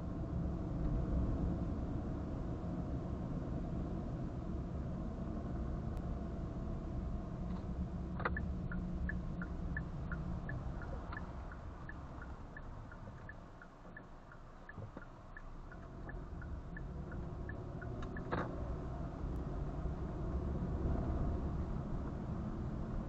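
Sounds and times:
car road and engine rumble: 0.0 - 23.0
turn signal ticking: 8.2 - 18.6.

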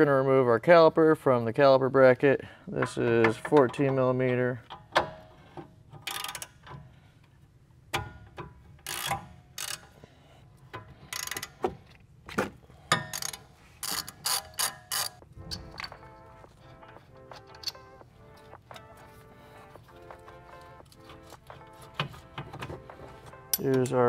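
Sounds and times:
ratchet wrench clicking: 6.0 - 6.7, 8.8 - 9.9, 11.1 - 11.6, 12.9 - 15.9.

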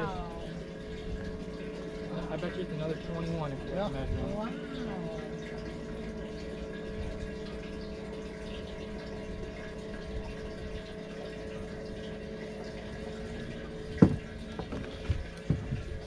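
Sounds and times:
electric pump humming: 0.0 - 16.0
water running through pump: 0.0 - 16.0.

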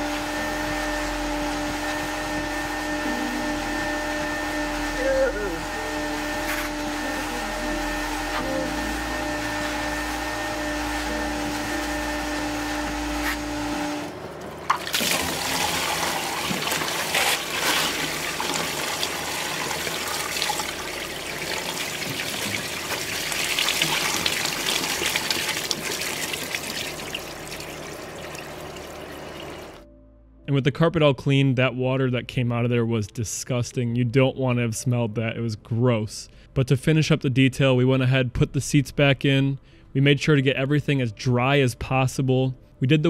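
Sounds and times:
carpet extractor running: 0.0 - 29.8
water gushing into a drain: 14.7 - 29.8.

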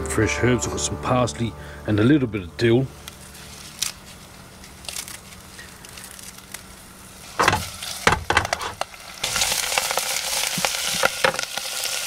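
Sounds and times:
food sizzling in hot oil: 6.7 - 12.0.

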